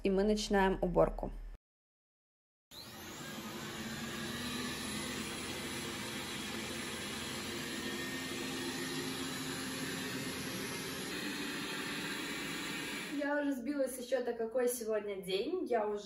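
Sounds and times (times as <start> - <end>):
robot vacuum fan whirring: 2.8 - 13.2.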